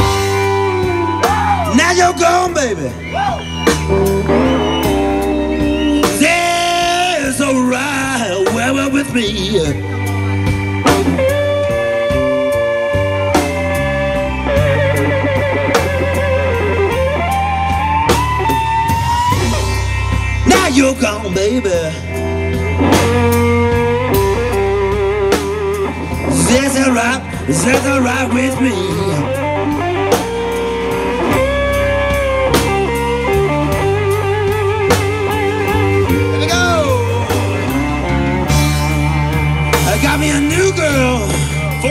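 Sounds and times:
blues band playing: 0.0 - 41.9
drums with cymbal hits: 0.0 - 41.9
electric guitar lead line: 0.0 - 41.9
person singing: 5.0 - 9.8, 26.3 - 29.4.

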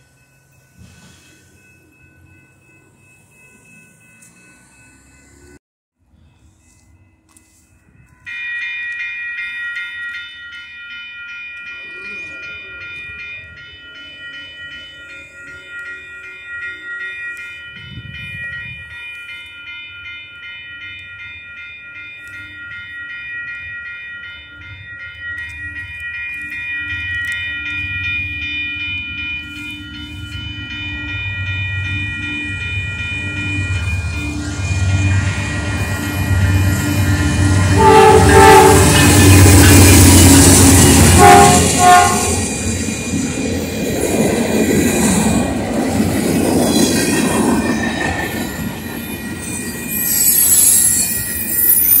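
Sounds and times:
crossing warning bell ringing: 0.0 - 5.6, 6.2 - 52.0
locomotive rumble: 29.0 - 50.0
train horn: 37.6 - 42.6.

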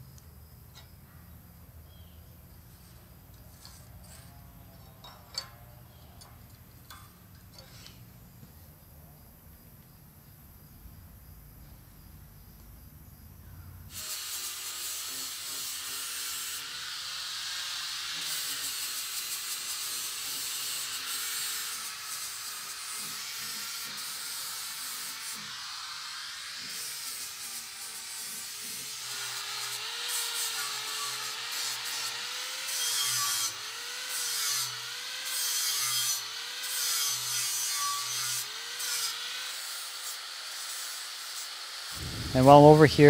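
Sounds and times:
angle grinder grinding steel: 2.7 - 8.0, 13.9 - 43.0.

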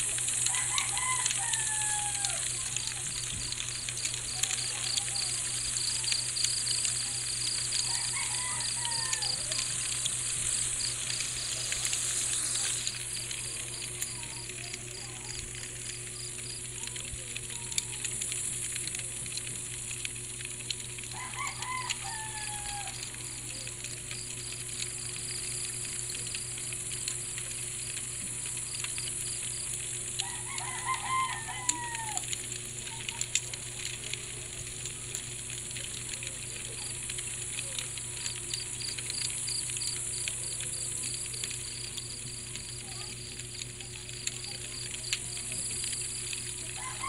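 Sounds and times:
crickets chirping: 0.0 - 47.0
low steady hum: 0.0 - 47.0
rooster crowing: 0.4 - 2.7, 7.5 - 10.0, 21.1 - 23.2, 30.2 - 32.4, 45.9 - 47.0.

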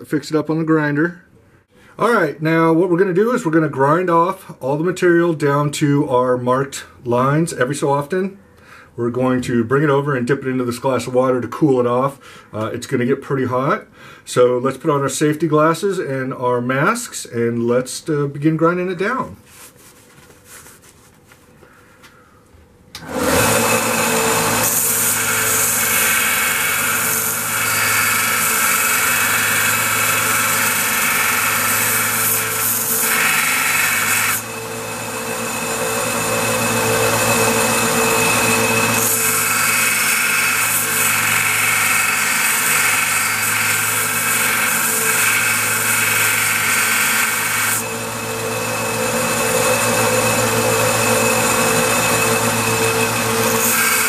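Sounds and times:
grinder motor hum: 23.0 - 54.0.

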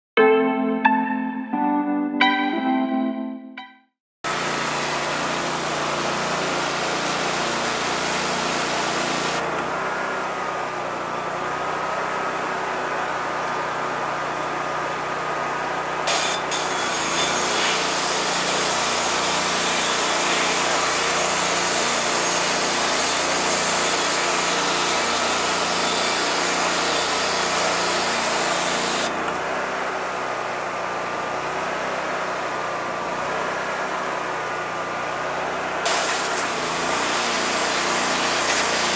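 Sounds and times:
pressure washer machine humming: 4.2 - 38.9
pressure washer jet hissing: 35.9 - 38.9.

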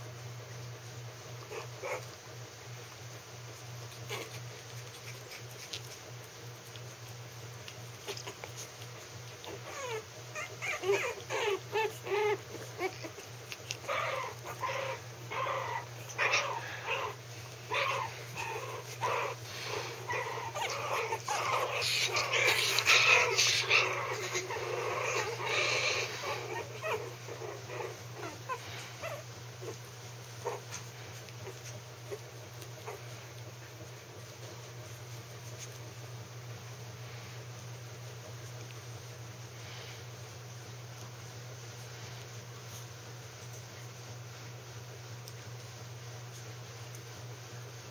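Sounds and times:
steady low hum: 0.0 - 47.9
puppies whimpering and yipping: 3.8 - 6.7, 7.6 - 33.3.

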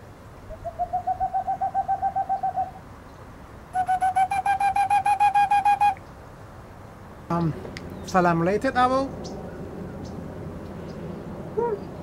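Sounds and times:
ceramic owl whistle hoots: 0.5 - 2.8, 3.8 - 6.0
owl hoots from phone recording: 0.5 - 2.8, 3.8 - 6.0.

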